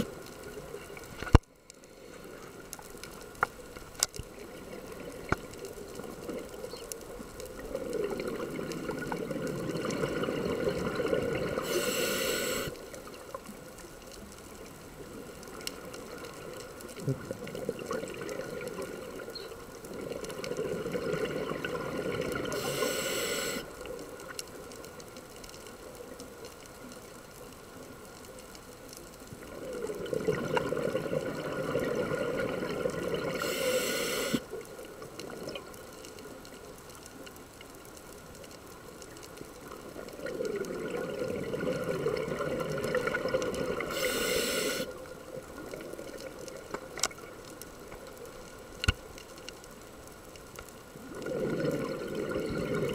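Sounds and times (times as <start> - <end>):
rushing air and bubbles: 7.6 - 12.8, 51.0 - 52.9
diver breathing through regulator: 11.6 - 12.8, 22.5 - 23.7, 33.3 - 34.4, 43.8 - 44.9.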